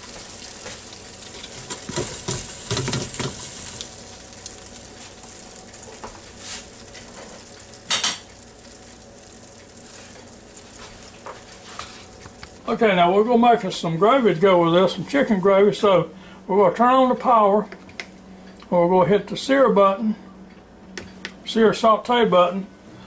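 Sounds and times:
chicken sizzling: 0.0 - 15.9.

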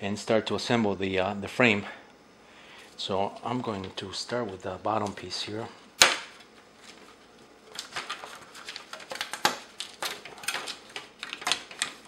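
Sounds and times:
plastic parts snapping loose: 7.7 - 12.0.

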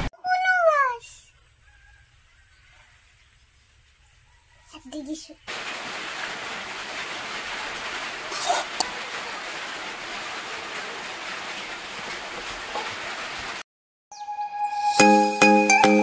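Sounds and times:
rain hissing: 5.5 - 13.6.

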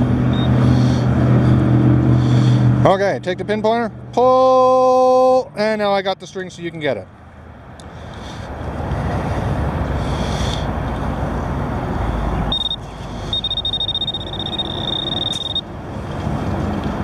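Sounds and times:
highway traffic rumble: 0.0 - 17.0
pinpointer pulsing beeps: 0.3 - 0.5, 12.5 - 15.6.

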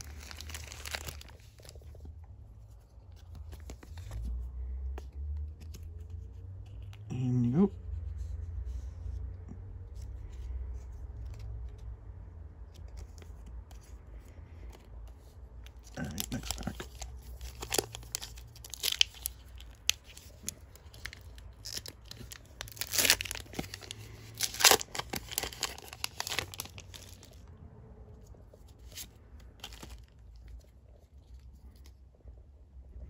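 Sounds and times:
foil wrapper tearing and crinkling: 0.0 - 1.8, 16.0 - 27.4.

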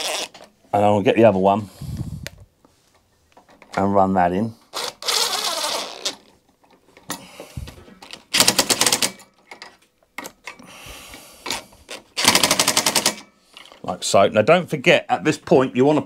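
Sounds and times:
impact driver rapid clicking: 8.3 - 9.2, 11.5 - 13.3.

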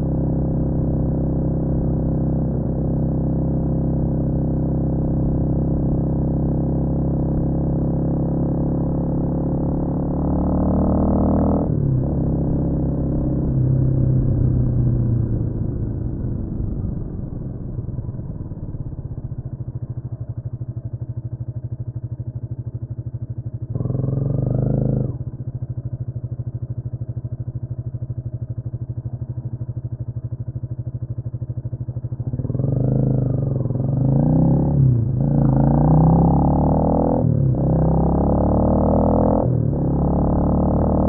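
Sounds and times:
motorcycle revving and pulling away: 0.0 - 41.0
motorcycle engine idling: 11.8 - 36.5.

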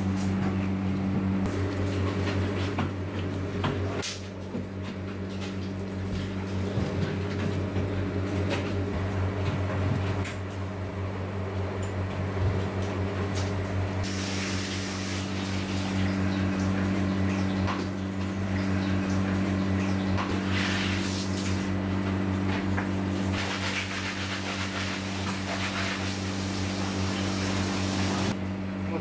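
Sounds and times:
low machine hum: 0.0 - 29.0.

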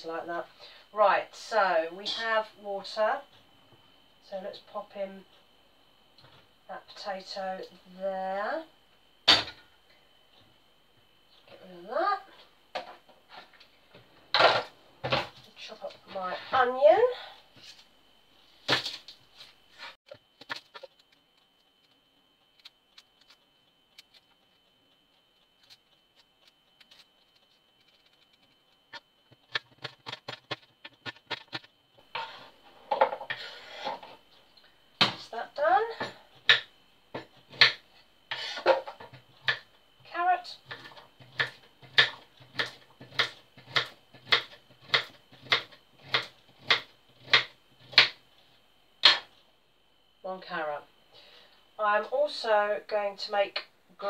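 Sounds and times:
onion skin crackling being peeled: 20.2 - 31.6.

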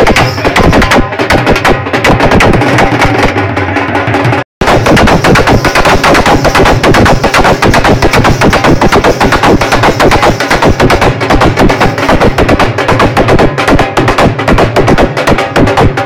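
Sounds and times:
loud dance music with fast drumming: 0.0 - 3.4, 4.6 - 16.0.

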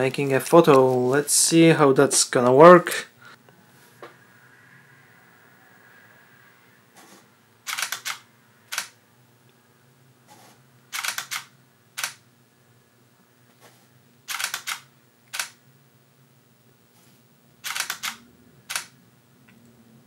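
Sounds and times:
camera shutter clicks: 7.7 - 9.0, 10.9 - 12.2, 14.3 - 15.6, 17.6 - 18.9.

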